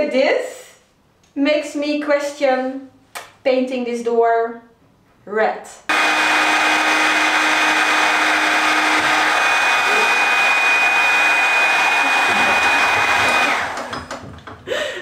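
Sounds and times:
heat gun blowing with high whine: 5.9s - 14.2s.

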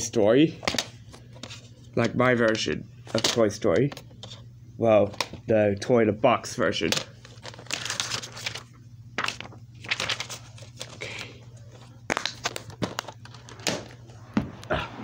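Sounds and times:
paper inserts rustling: 0.6s - 4.4s, 6.8s - 14.1s.

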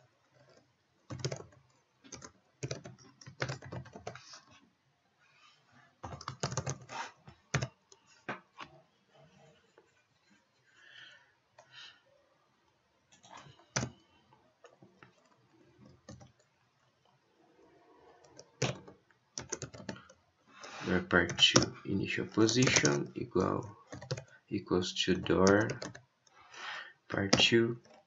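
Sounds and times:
computer keyboard typing: 0.3s - 4.3s, 6.0s - 6.9s, 7.5s - 7.8s, 13.1s - 14.0s, 15.0s - 16.5s, 18.1s - 20.2s, 20.8s - 24.4s, 25.2s - 26.0s, 27.1s - 28.0s.

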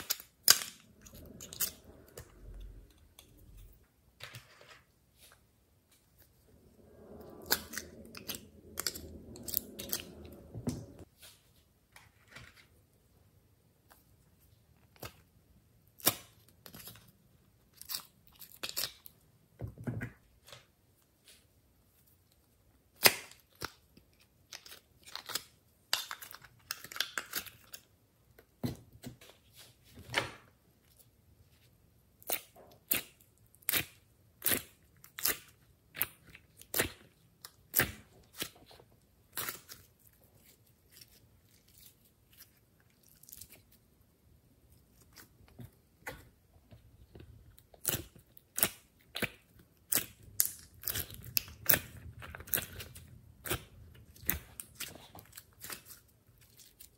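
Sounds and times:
slime popping and crackling: 47.6s - 56.9s.

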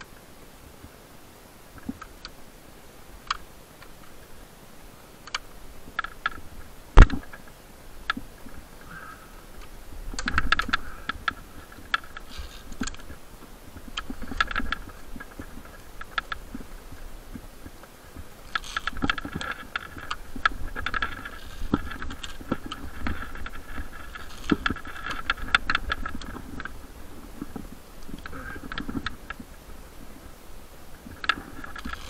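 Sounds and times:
climbing gear clicks: 3.2s - 4.3s, 5.1s - 32.0s
rope rustling scrapes: 11.4s - 13.1s.

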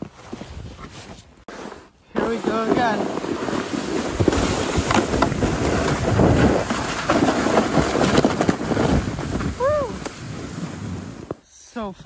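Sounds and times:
sled scraping over snow: 0.0s - 11.9s
sled knocking on bumps: 1.5s - 11.4s
wind on microphone: 4.1s - 11.4s.

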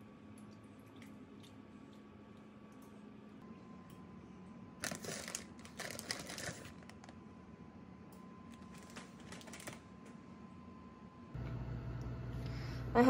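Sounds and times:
cheese rustling and crinkling: 4.8s - 7.2s.

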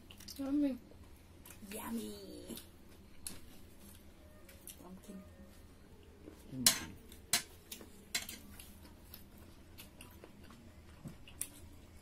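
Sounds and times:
chewing: 2.5s - 12.0s.

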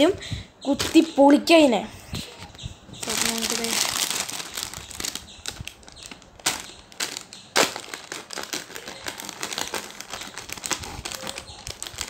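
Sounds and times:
plastic wrapper crinkling: 2.5s - 12.0s.

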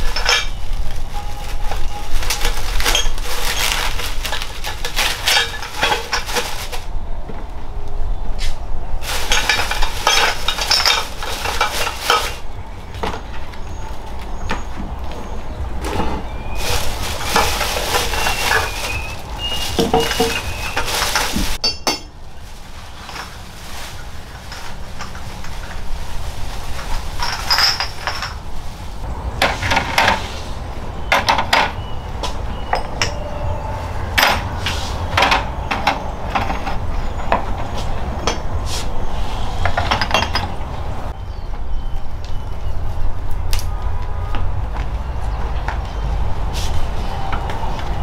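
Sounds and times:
dishes and utensils clinking: 9.1s - 12.4s, 16.6s - 22.2s, 27.1s - 28.4s.

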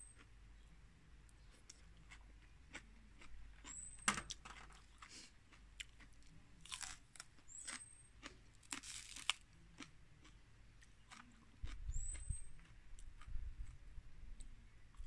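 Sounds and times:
chewing: 1.4s - 13.8s
crunching bites into onion: 6.7s - 9.9s.

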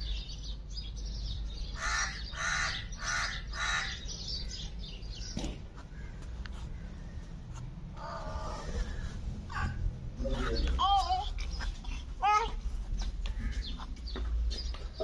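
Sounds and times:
parakeet harsh calls: 1.8s - 4.6s.

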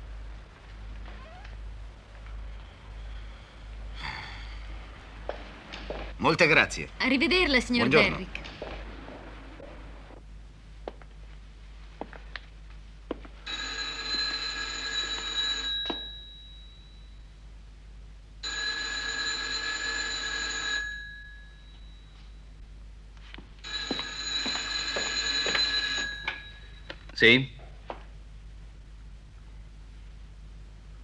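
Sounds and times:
telephone bell ringing: 13.4s - 17.3s, 18.4s - 22.4s, 23.6s - 27.0s.

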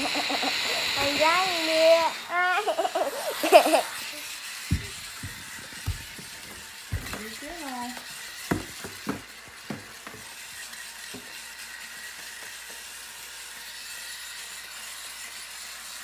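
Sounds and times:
cardboard box knocking on floor: 4.7s - 7.4s, 8.5s - 10.0s.

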